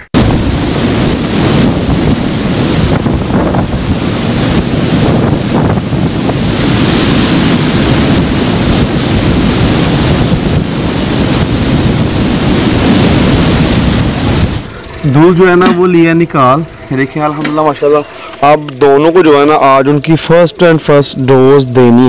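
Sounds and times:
water roaring over weir: 0.0 - 15.8
wind buffeting microphone: 0.0 - 16.9.

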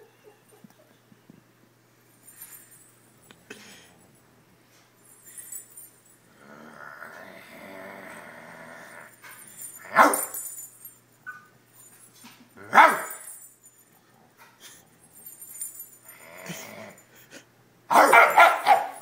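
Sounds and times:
dog barking: 10.0 - 10.3, 12.7 - 13.2, 17.9 - 19.0.

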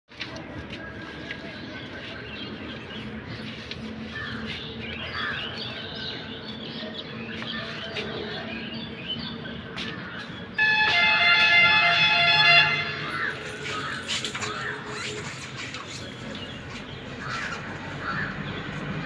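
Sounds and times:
small birds chirping: 13.4 - 19.0.

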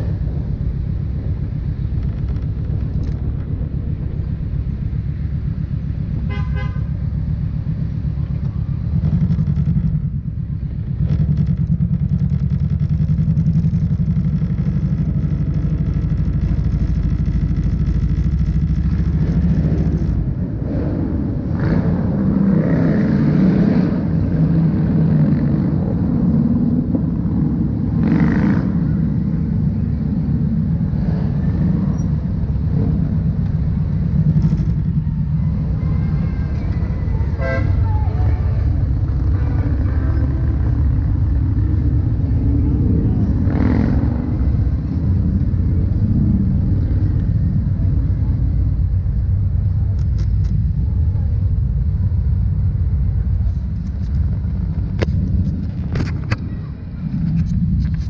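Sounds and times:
motorcycle engine running: 0.0 - 58.0
other motorcycle engines: 0.0 - 58.0
motorcycle horn toot: 6.3 - 7.0, 35.9 - 40.4.

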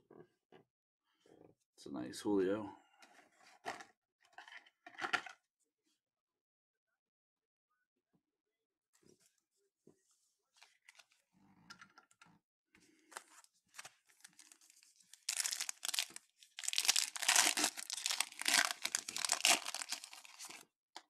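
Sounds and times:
wrapper crinkling as torn open: 13.7 - 20.6.

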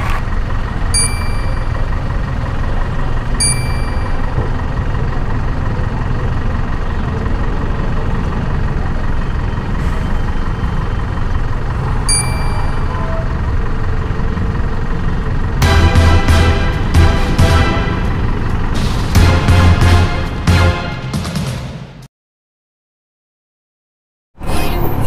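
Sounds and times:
idling engines rumble: 0.0 - 21.2
ringing ding: 1.0 - 1.7, 3.4 - 4.2, 12.1 - 13.0.

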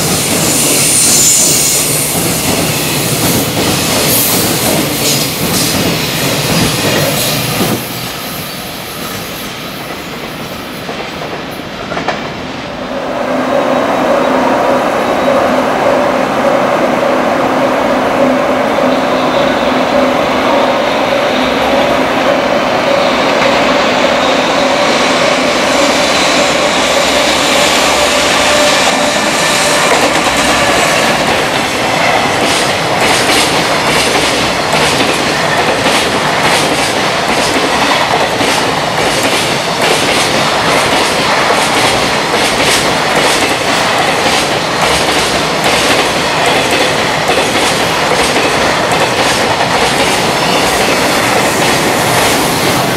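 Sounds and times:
electric locomotive humming: 0.0 - 52.9
train wheels clattering over rail joints: 28.5 - 52.5.

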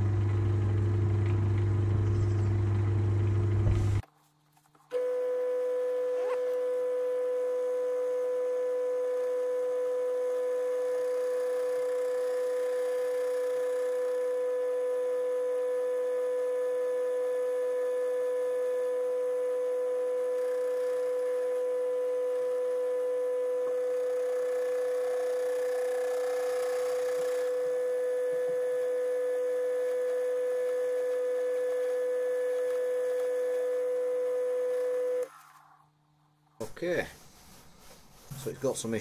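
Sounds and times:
lathe whining: 4.9 - 35.8.

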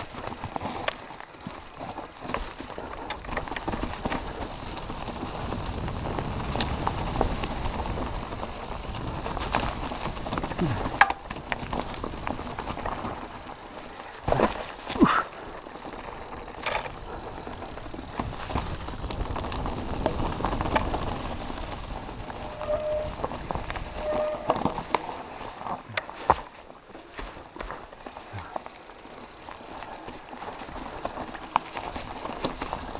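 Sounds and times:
bike rattling over bumps: 0.0 - 32.9
bike tyres crunching on dirt: 0.0 - 32.9
short squeaks: 22.4 - 24.8.

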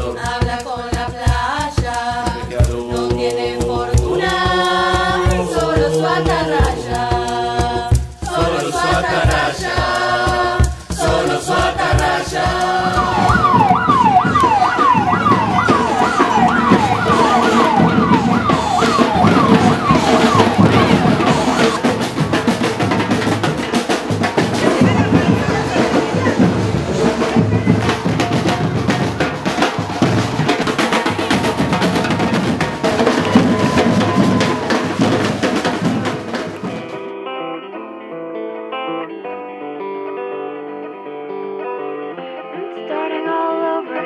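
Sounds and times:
choral singing with steady beat: 0.0 - 37.1
crowd noise: 8.2 - 37.9
fire engine siren yelping: 12.6 - 22.3, 31.1 - 35.4.

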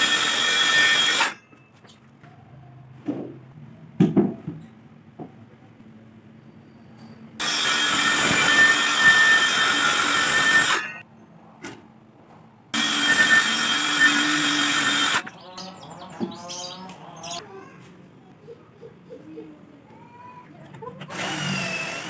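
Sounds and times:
electric power tool running: 0.0 - 1.4, 7.4 - 11.0, 12.8 - 15.2, 21.1 - 22.0.

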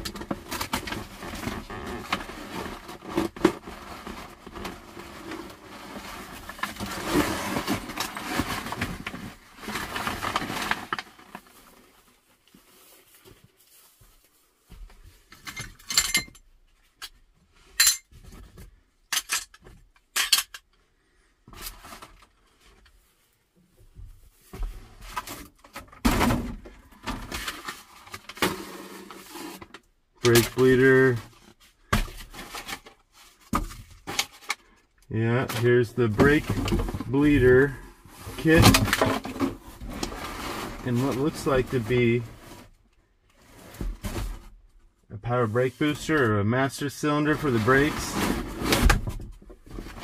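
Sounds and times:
rustling clatter of debris: 0.0 - 14.2, 35.4 - 42.8
glass clinks and knocks: 15.4 - 16.4, 17.8 - 18.1.

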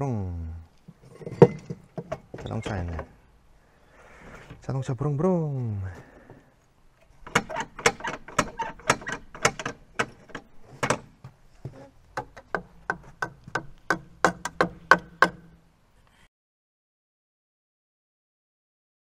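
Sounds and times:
plastic shovel banging on wood: 7.2 - 15.5.

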